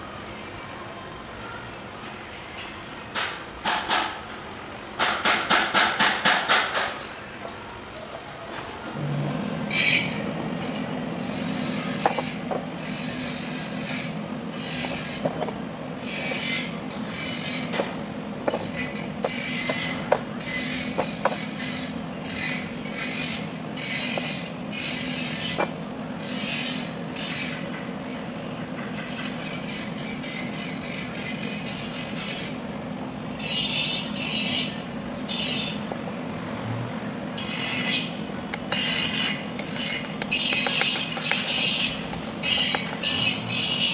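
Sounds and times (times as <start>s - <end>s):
steady low hum: 4.1s - 43.9s
hand ratchet clicking: 38.5s - 43.8s.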